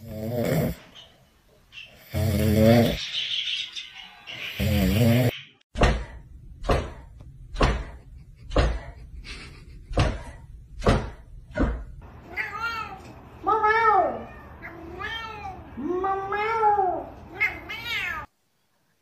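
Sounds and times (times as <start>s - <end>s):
heavy thumps: 9.8s - 12.0s
cat meowing: 12.2s - 18.3s.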